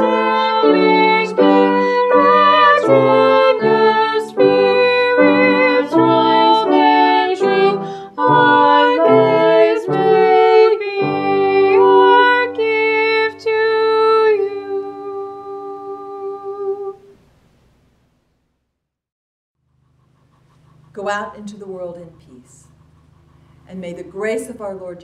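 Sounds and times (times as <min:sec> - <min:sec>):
person singing a hymn: 0:00.0 - 0:17.2
piano: 0:00.0 - 0:17.2.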